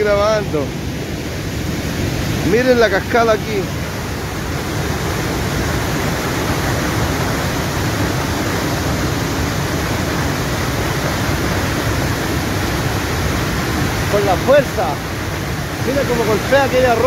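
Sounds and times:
waterfall pouring onto rock: 0:08.4 - 0:17.0.

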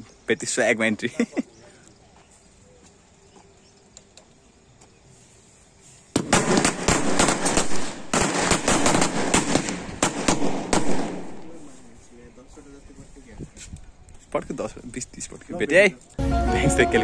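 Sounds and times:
firecrackers crackling and banging: 0:06.1 - 0:11.9.

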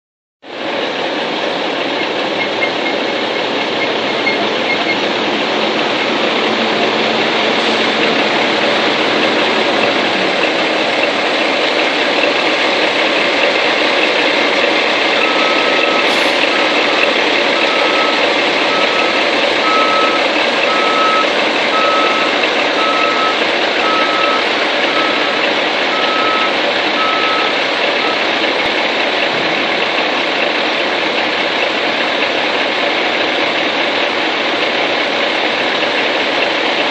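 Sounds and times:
diesel truck engine running: 0:00.4 - 0:36.9
backup alarm beeping: 0:15.2 - 0:28.2.

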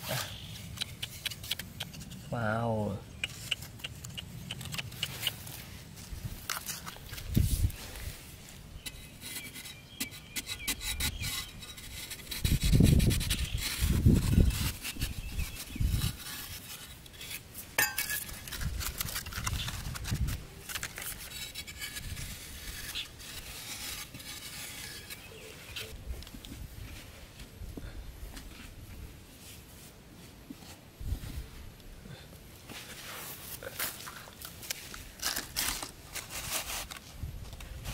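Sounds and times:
metal tool scraping soil: 0:06.4 - 0:26.0, 0:32.9 - 0:37.1
hands digging in soil: 0:32.7 - 0:37.9.

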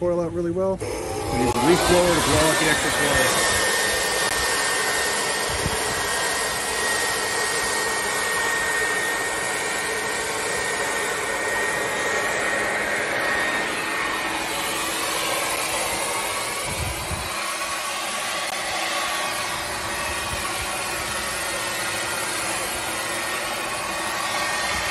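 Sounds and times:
electric leaf blower running: 0:00.8 - 0:24.9.

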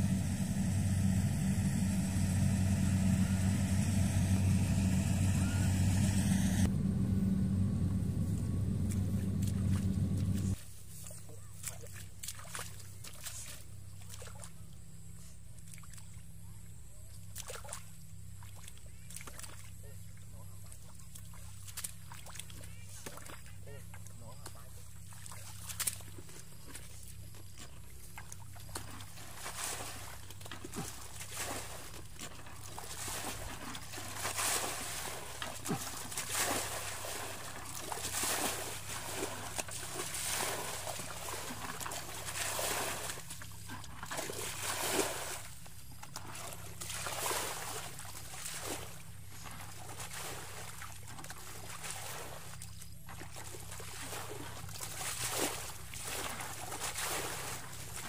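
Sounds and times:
low hum: 0:00.0 - 0:10.6
water sloshing and splashing: 0:08.2 - 0:16.4, 0:17.1 - 0:58.0.

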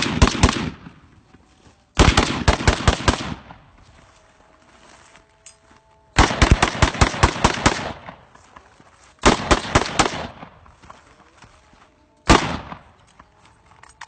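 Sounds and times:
rifle shots: 0:00.0 - 0:01.1, 0:02.0 - 0:03.7, 0:06.2 - 0:08.4, 0:09.2 - 0:10.7, 0:12.3 - 0:13.0.

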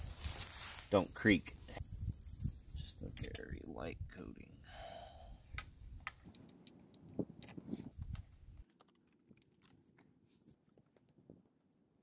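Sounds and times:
clicks and rattles of bike parts: 0:03.1 - 0:03.6.

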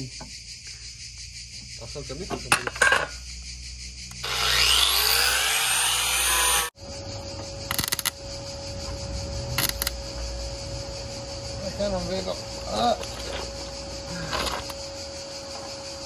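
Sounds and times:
power tool running: 0:04.1 - 0:06.7.

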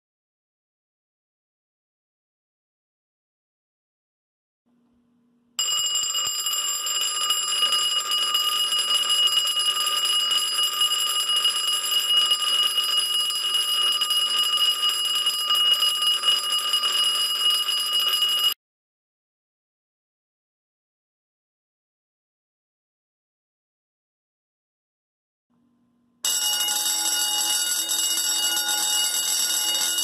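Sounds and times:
fire alarm bell ringing: 0:05.6 - 0:18.6, 0:26.2 - 0:30.0.

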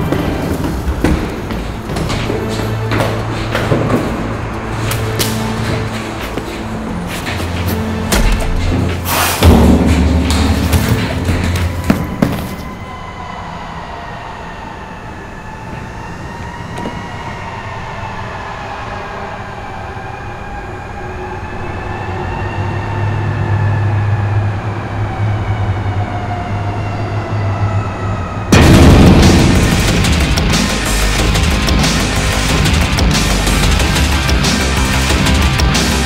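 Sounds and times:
atmospheric drone of wavering tones: 0:02.7 - 0:28.8
loud heavy music: 0:04.0 - 0:12.0, 0:28.6 - 0:36.0
deep hum: 0:07.9 - 0:12.0, 0:28.5 - 0:35.9.

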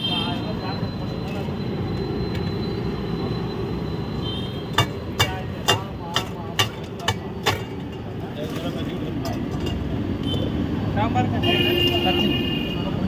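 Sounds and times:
street stall background noise: 0:00.0 - 0:13.0
sharp knocks of steel utensils: 0:04.6 - 0:08.2, 0:09.1 - 0:09.9.

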